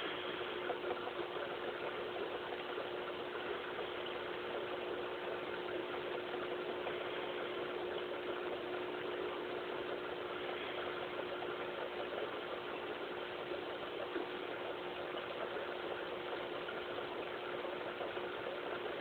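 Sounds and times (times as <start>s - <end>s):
air pump humming: 0.0s - 19.0s
water fizzing with bubbles: 0.0s - 19.0s.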